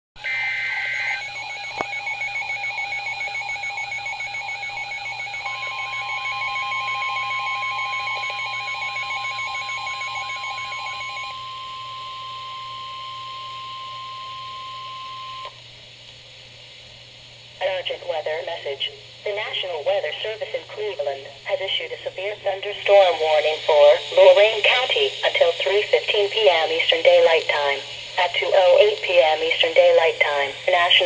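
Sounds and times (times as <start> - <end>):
rapid warbling alarm beeps: 0.2 - 11.3
screeching digital header data: 0.2 - 15.4
steady warning alarm tone: 0.2 - 15.6, 22.2 - 31.0.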